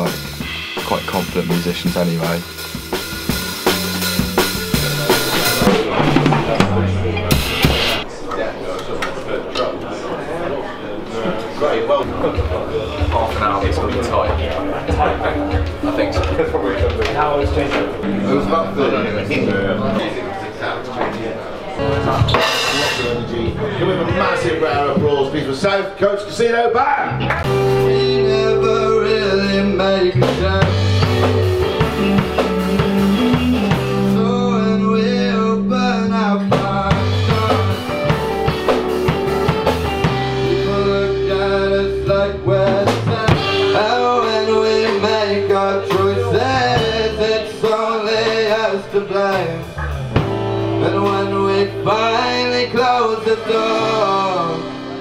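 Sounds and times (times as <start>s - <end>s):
bass guitar: 0.0s - 8.0s, 12.3s - 20.2s, 21.8s - 25.4s, 27.0s - 55.0s
acoustic and electric guitars: 0.0s - 8.1s, 12.0s - 55.0s
drum kit: 0.0s - 8.1s, 12.1s - 20.0s, 21.8s - 25.3s, 27.2s - 55.0s
man singing: 27.4s - 39.4s, 40.0s - 55.0s.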